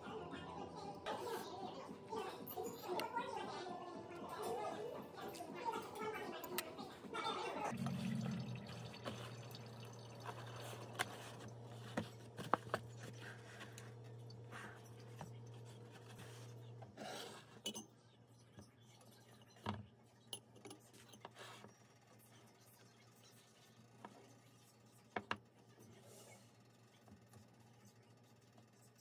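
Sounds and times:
low steady hum: 7.7 - 21.1.

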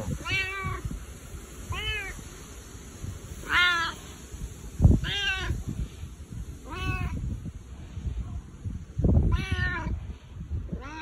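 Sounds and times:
cat meowing: 0.2 - 0.8, 3.4 - 4.0, 5.0 - 5.6, 9.3 - 9.9, 10.8 - 11.0.

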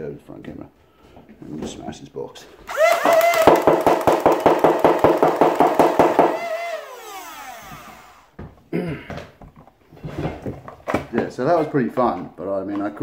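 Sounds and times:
toy blaster firing darts: 2.7 - 5.2
motor whine: 6.4 - 8.4.

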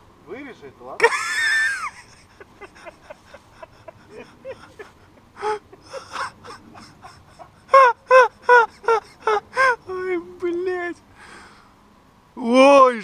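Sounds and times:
man laughing: 1.0 - 10.3.

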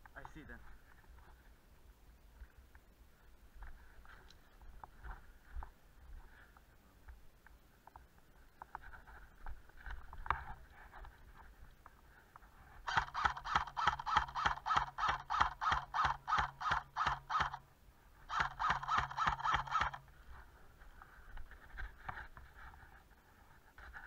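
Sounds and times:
soft slow footsteps: 0.0 - 12.9, 20.0 - 24.0.

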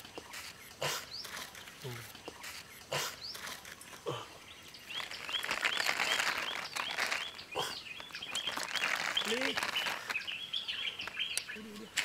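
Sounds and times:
bird chirping: 0.0 - 12.0
water pouring and splashing: 8.5 - 10.1.

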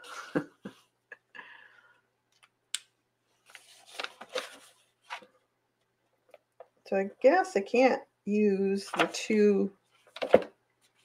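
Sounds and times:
paper page rustling: 3.4 - 5.4, 8.8 - 11.0.

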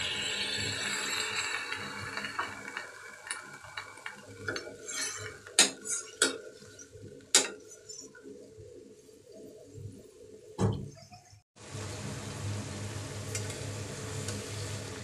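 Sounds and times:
faint sizzle: 0.0 - 9.8, 11.6 - 15.0
spoon clinking and scraping pan: 4.8 - 6.4.

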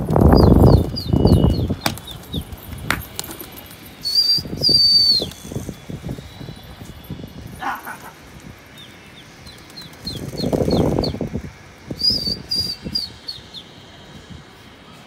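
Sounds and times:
pigeons flapping wings: 0.0 - 4.4, 9.4 - 11.3
high whistle-like tone: 4.0 - 7.4, 11.9 - 13.2.

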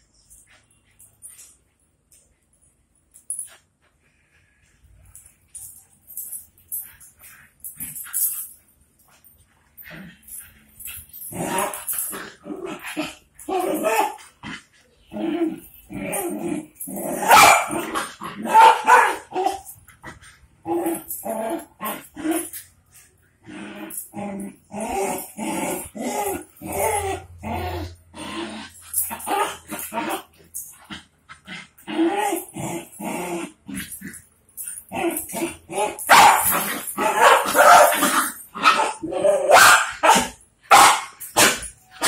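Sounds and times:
dogs barking and yipping: 13.0 - 14.4, 16.9 - 19.8, 34.6 - 42.0.

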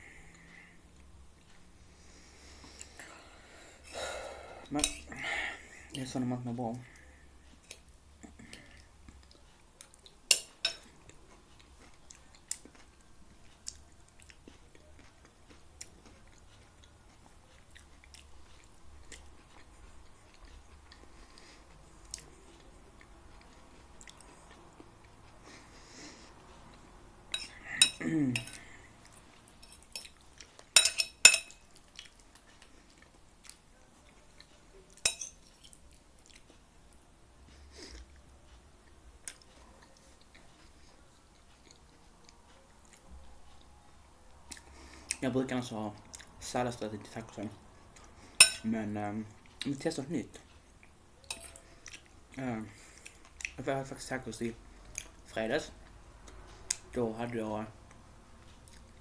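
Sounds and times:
quiet chewing: 0.0 - 6.1, 6.8 - 30.8, 31.5 - 45.3, 45.9 - 48.4, 49.2 - 56.9, 57.7 - 59.0
fork clinking against a plate: 4.8 - 5.1, 10.3 - 10.9, 27.3 - 28.7, 29.6 - 31.7, 35.0 - 35.6, 48.4 - 48.7, 51.3 - 51.6.

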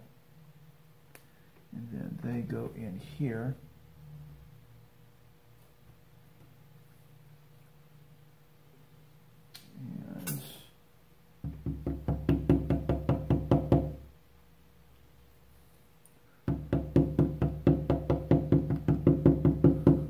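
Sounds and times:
rapid knocking of tool on wooden pin: 11.4 - 14.0, 16.5 - 20.0.

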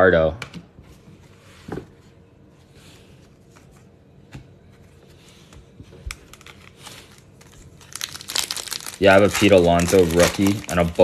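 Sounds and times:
foil card packs tapping and clicking: 8.0 - 11.0.

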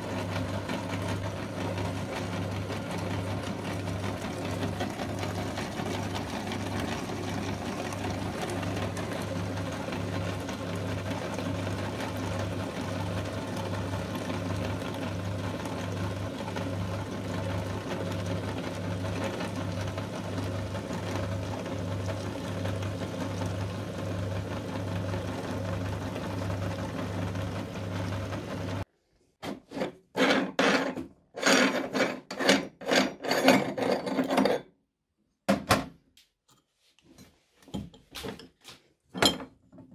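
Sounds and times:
meat grinder humming and pulsing: 0.0 - 28.8.

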